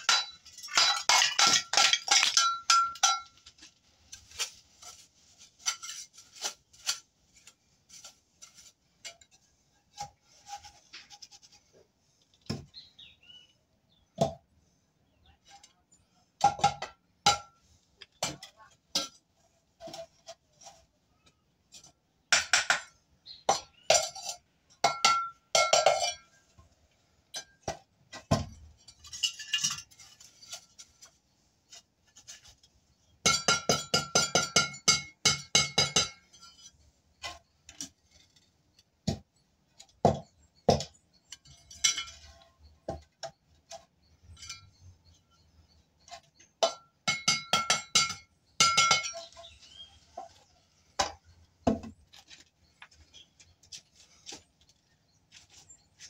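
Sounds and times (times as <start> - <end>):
trowel clinking on brick: 0.0 - 4.3, 21.7 - 26.4, 27.3 - 30.9, 33.2 - 51.8.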